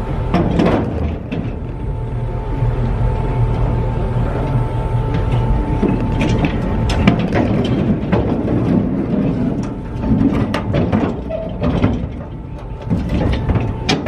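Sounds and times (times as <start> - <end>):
low rumble: 0.0 - 14.0
metal knocks and clanks: 0.3 - 1.6, 5.1 - 14.0.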